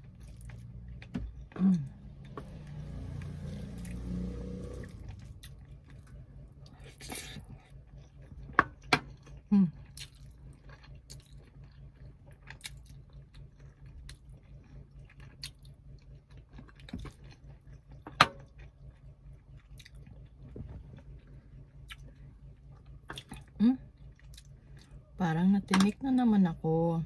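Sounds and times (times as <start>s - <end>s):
chewing and lip smacking: 5.2s - 25.0s.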